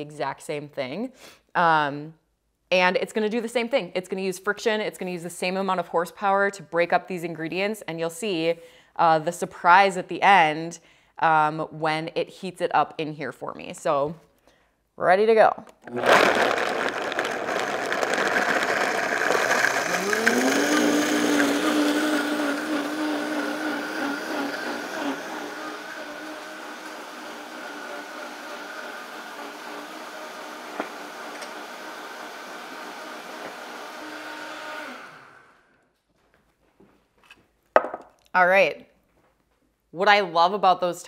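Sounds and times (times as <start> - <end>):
blender motor running: 15.8 - 35.7.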